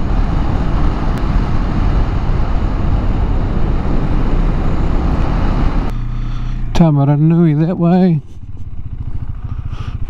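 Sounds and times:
wind and road noise rushing: 0:00.0 - 0:10.0.

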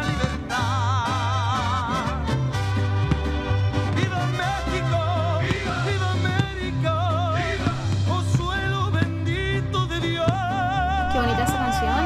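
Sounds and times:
orchestral music: 0:00.0 - 0:12.0.

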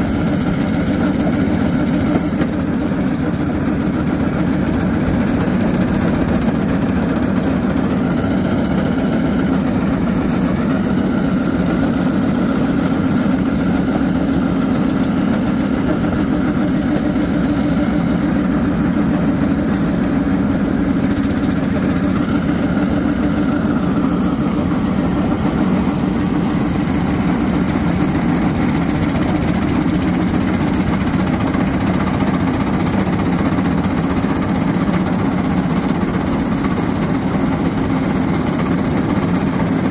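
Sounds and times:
railcart engine droning: 0:00.0 - 0:39.9.

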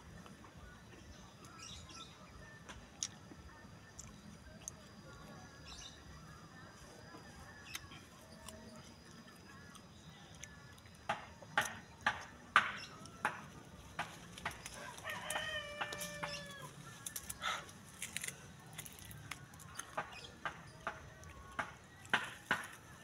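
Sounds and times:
crunching crisp mango: 0:01.4 - 0:23.0
rooster crowing: 0:14.7 - 0:16.8.

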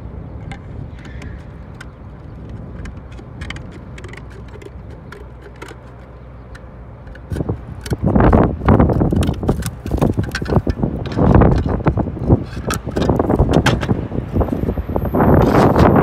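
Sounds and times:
wind rumbling on microphone: 0:00.0 - 0:16.0
slate tiles clicking and tapping: 0:00.5 - 0:11.8.

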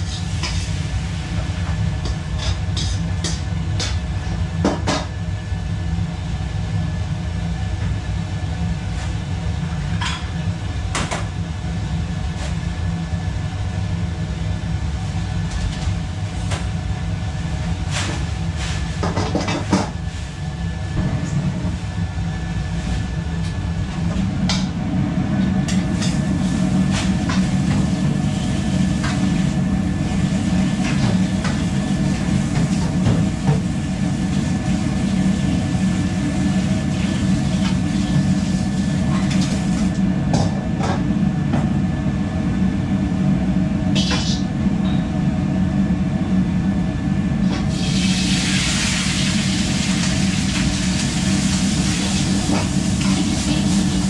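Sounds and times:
gas burners and extraction hood roar: 0:00.0 - 0:54.0
steam hissing from hot wok: 0:47.6 - 0:54.0.

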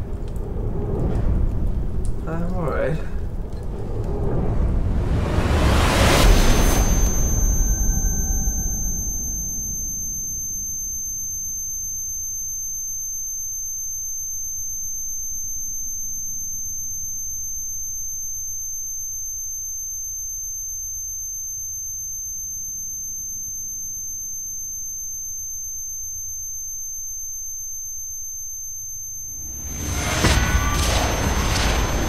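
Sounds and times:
low rumble: 0:00.0 - 0:10.4, 0:29.1 - 0:32.0
high-pitched ringing tone: 0:05.4 - 0:32.0.

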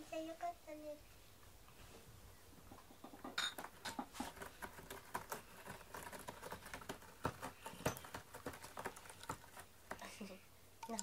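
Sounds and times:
light clicks and scratches: 0:02.7 - 0:11.0.

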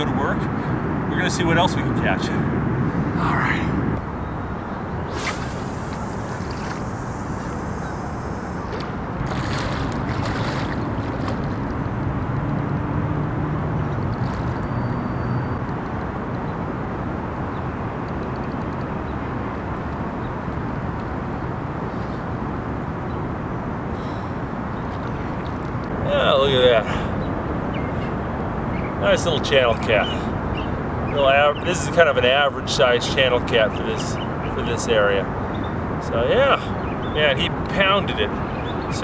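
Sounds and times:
short hiss: 0:05.1 - 0:09.0
fishing rod swish: 0:05.1 - 0:11.7.

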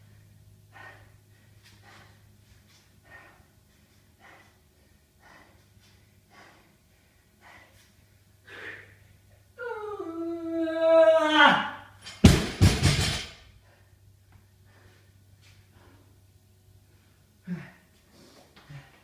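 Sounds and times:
person breathing hard: 0:00.0 - 0:09.3, 0:13.5 - 0:19.0.

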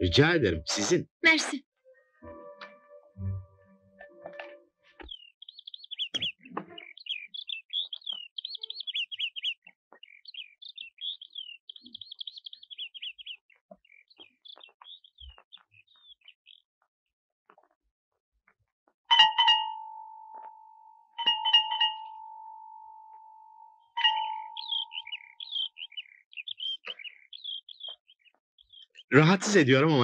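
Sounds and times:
songbird twittering: 0:05.0 - 0:16.6, 0:21.2 - 0:29.1.

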